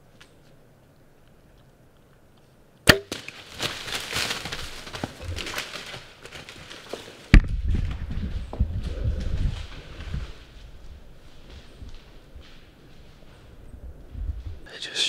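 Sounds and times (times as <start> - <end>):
bow shot snap: 2.9 - 3.2
deer running through dry leaves: 3.1 - 14.7.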